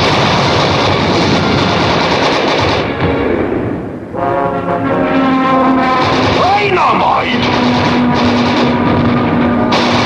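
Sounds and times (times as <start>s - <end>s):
cartoon machine-gun fire: 0.0s - 3.1s, 5.8s - 10.0s
orchestral music: 4.1s - 10.0s.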